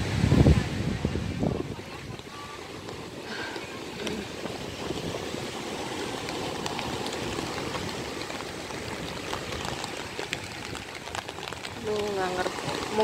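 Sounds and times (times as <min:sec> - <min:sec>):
rain rushing: 0:00.0 - 0:13.0
small surf waves breaking: 0:00.0 - 0:13.0
sharp raindrop ticks: 0:02.1 - 0:13.0.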